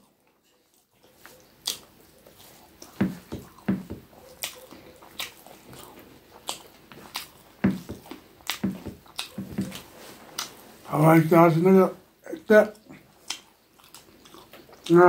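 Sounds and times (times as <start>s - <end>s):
wet chewing: 0.0s - 10.9s, 12.7s - 15.0s
squelching food mixed by hand: 0.0s - 11.6s
lip smacks: 1.0s - 10.6s, 12.8s - 15.0s.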